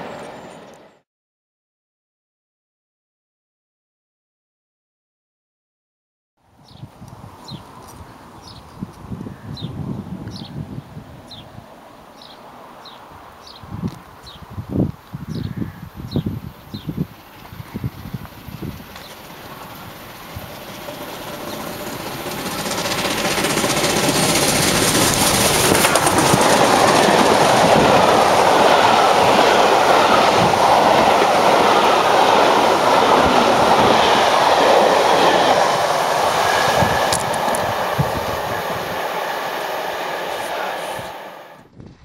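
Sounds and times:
steam train passing: 0.0s - 1.0s, 16.6s - 41.7s.

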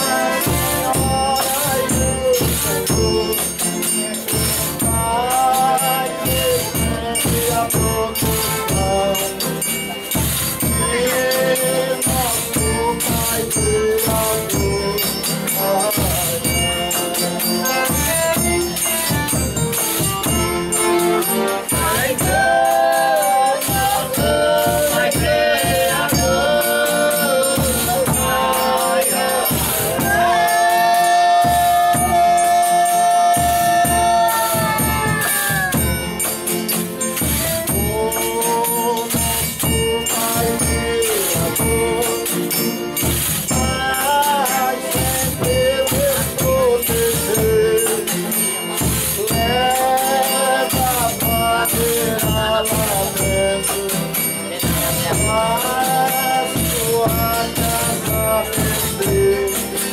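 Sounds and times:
tambourines and percussion beat: 0.0s - 59.9s
group singing drawn-out lines: 21.2s - 35.8s.

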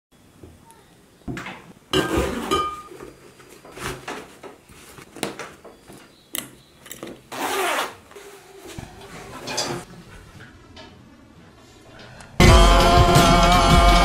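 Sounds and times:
fabric rustling: 3.1s - 6.1s, 7.0s - 9.9s
metal buckles clicking: 6.3s - 7.2s
zip pulled: 7.3s - 8.4s.

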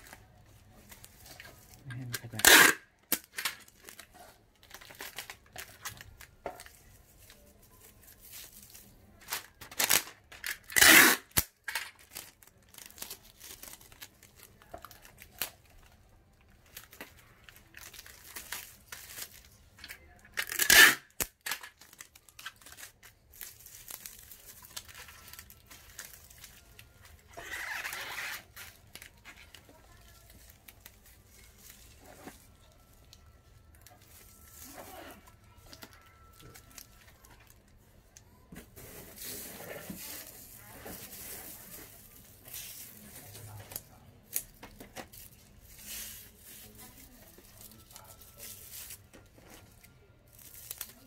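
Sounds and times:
plastic string crinkling: 0.0s - 51.0s
plastic string ripping: 1.9s - 4.1s, 9.3s - 12.9s, 20.4s - 23.0s, 25.9s - 29.6s.

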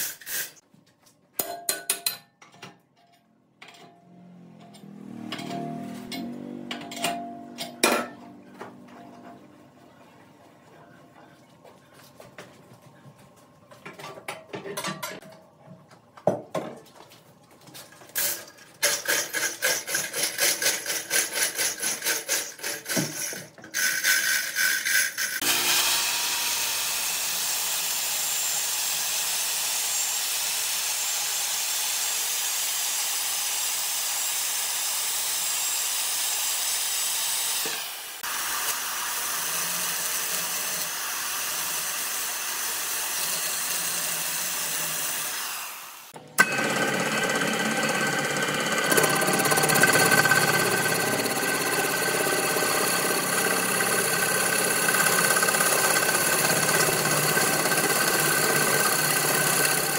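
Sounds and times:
woodworking tool cutting wood: 18.8s - 59.9s.

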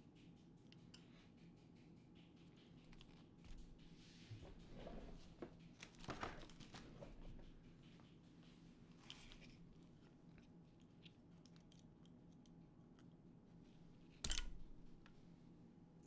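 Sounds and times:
small parts and tools clicking: 14.1s - 15.2s.

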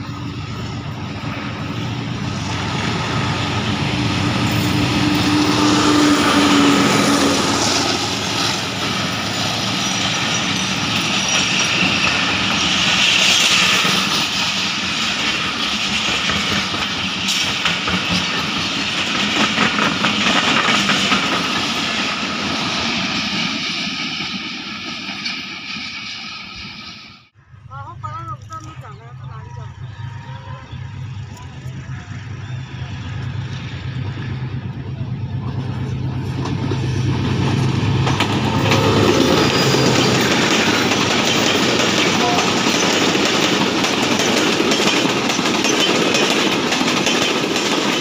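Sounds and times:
passenger train passing: 0.0s - 48.0s
wheels clattering over rail joints: 6.5s - 23.5s, 35.4s - 48.0s.

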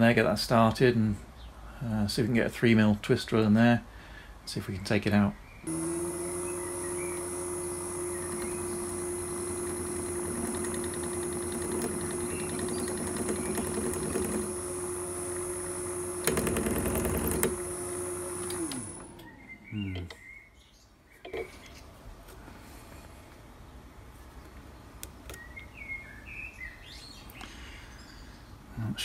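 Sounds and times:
rattling drill cutting: 5.7s - 19.3s
spindle spinning down: 5.7s - 19.4s
drill spindle whining: 5.7s - 19.6s.

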